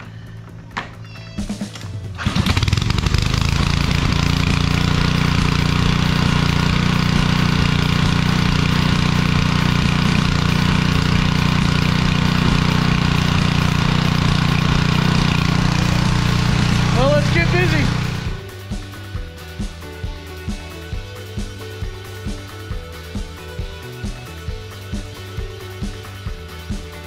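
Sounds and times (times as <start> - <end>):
pressure washer engine running: 2.2 - 18.5.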